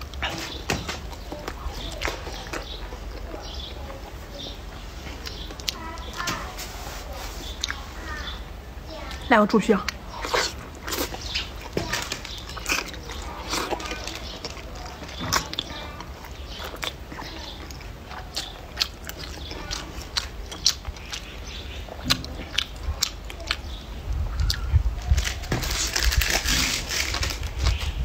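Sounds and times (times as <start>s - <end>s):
chewing with wet mouth clicks: 1.1s - 6.3s, 7.6s - 7.8s, 9.1s - 25.2s.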